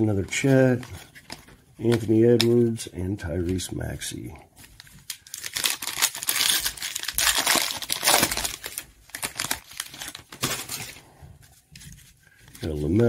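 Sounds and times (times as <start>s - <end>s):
foil wrapper crinkling: 4.6s - 11.1s.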